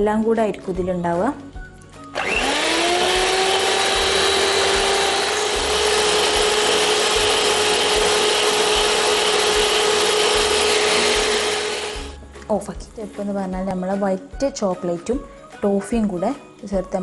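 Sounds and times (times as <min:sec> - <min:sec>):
electric hand mixer whining: 0:02.1 - 0:12.2
beaters whipping cream in steel bowl: 0:02.2 - 0:12.2.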